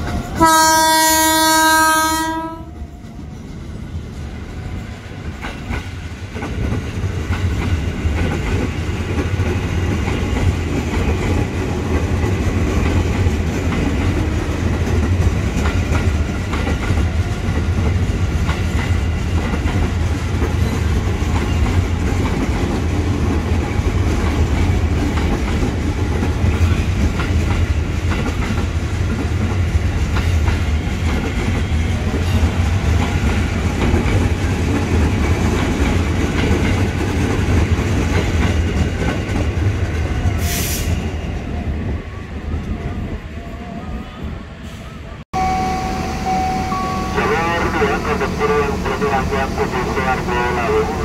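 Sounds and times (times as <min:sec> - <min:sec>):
clickety-clack of rail joints: 0:00.0 - 0:01.4, 0:02.3 - 0:41.4
electric train running past: 0:00.0 - 0:51.0.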